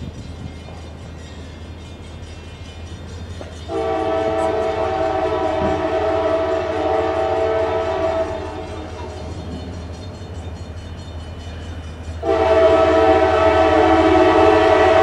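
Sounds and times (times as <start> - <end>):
locomotive air horn chord: 3.7 - 9.4, 12.2 - 15.0.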